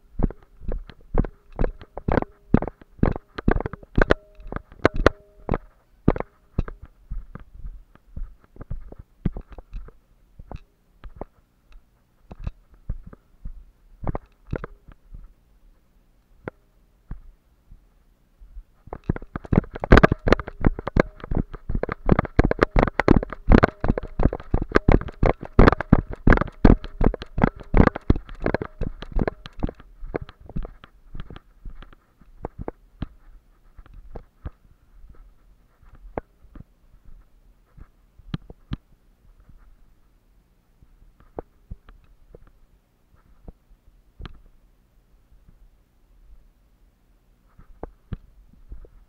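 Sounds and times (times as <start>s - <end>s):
footsteps in brush: 0.2s - 11.4s
dry brush crackling: 18.8s - 38.6s.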